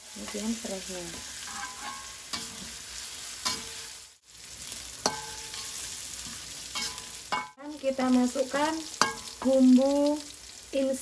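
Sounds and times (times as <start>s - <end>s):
paste sizzling in hot oil: 0.0s - 11.0s
metal spatula scraping wok: 0.1s - 4.1s, 4.9s - 7.6s
spatula clinking on wok: 1.1s - 2.6s, 3.4s - 3.8s, 5.0s - 5.8s, 6.7s - 7.6s, 8.9s - 9.6s.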